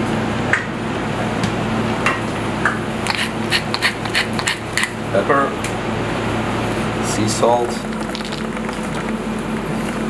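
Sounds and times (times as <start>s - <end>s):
pepper mill grinding clicks: 3.0s - 4.9s.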